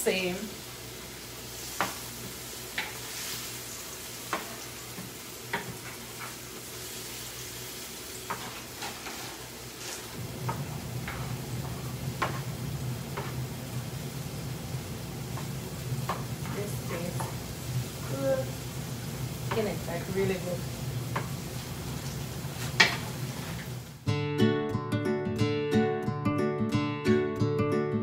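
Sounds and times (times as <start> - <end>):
sauce sizzling in a frying pan: 0.0 - 24.0
spoon scraping a pan: 8.2 - 10.1.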